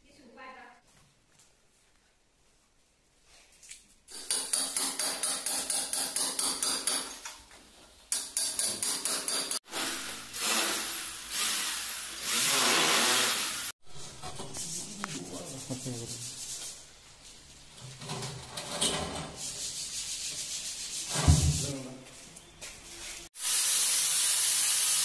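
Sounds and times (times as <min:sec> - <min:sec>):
hammer and chisel chipping plaster: 0:04.1 - 0:07.2
electric power tool running: 0:09.7 - 0:13.7.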